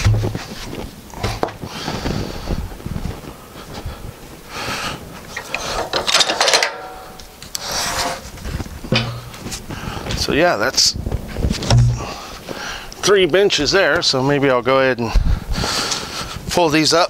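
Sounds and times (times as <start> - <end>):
wooden boards scraping and knocking: 0.0 - 1.6, 7.6 - 8.3, 8.9 - 9.6, 11.5 - 12.1.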